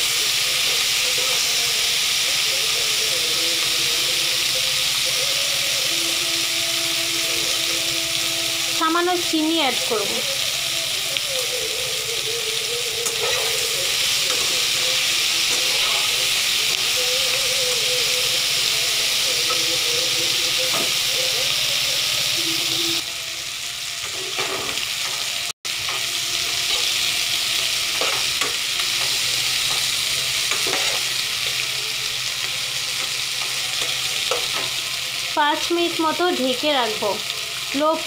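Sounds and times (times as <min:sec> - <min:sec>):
beans sizzling in hot oil: 0:00.0 - 0:38.0
metal spatula scraping pan: 0:13.0 - 0:14.7, 0:27.8 - 0:31.2.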